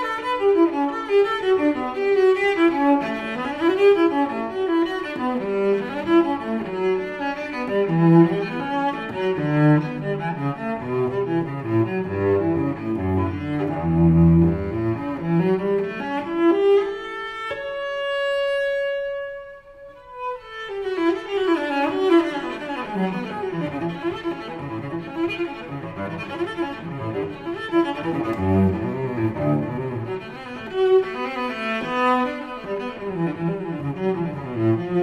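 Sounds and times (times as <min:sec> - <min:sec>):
classical string music: 0:00.0 - 0:35.0.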